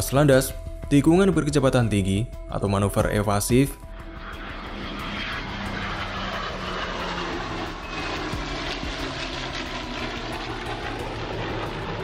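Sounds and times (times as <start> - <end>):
fighter jets flying low past: 3.4 - 12.0.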